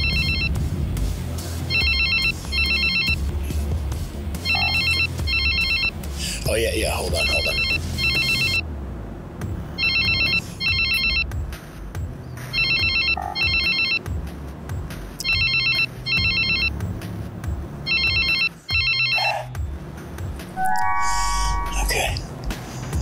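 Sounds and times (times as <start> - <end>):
telephone ringing: 0.0 - 0.5, 1.7 - 3.2, 4.5 - 5.9, 7.2 - 8.6, 9.8 - 11.2, 12.5 - 14.0, 15.2 - 16.7, 17.9 - 19.3.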